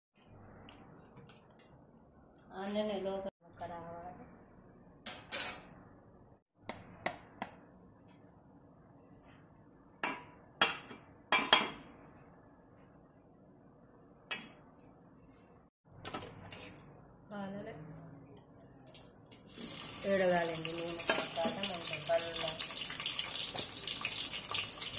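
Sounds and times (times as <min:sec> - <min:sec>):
metal bowls and spoon clinking: 0:20.0 - 0:24.9.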